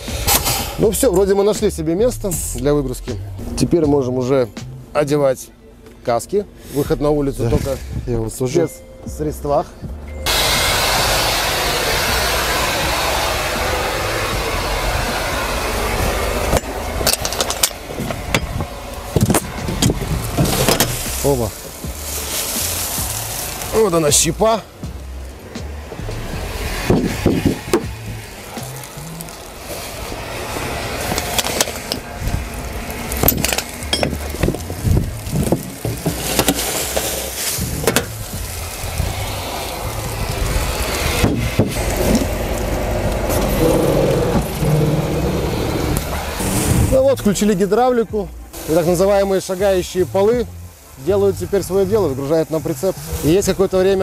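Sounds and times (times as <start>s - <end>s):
loud steady rushing noise: 0.0s - 2.5s, 9.8s - 54.0s
truck engine idling: 0.0s - 54.0s
wood chips spilling: 12.1s - 47.6s, 48.6s - 54.0s.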